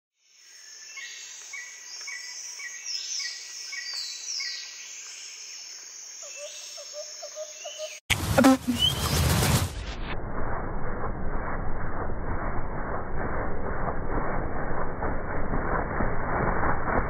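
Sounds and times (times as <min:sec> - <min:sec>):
bird chirps and whistles: 0:06.2 - 0:08.0, 0:08.7 - 0:09.2.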